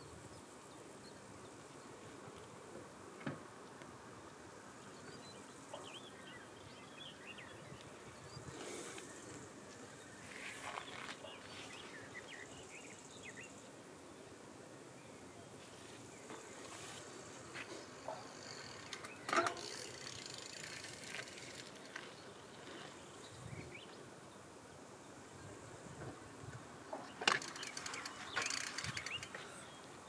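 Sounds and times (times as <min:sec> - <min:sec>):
steady hiss: 0:00.0 - 0:30.0
insect chirring: 0:17.1 - 0:23.2, 0:27.0 - 0:30.0.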